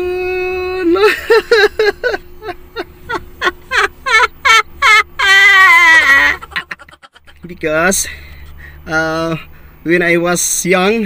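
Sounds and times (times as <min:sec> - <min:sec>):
man giggling: 0:00.9 - 0:07.6.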